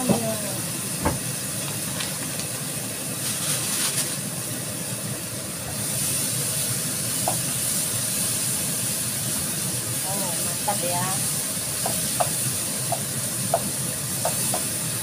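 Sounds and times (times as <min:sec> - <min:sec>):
paste sizzling in frying pan: 0:00.1 - 0:15.0.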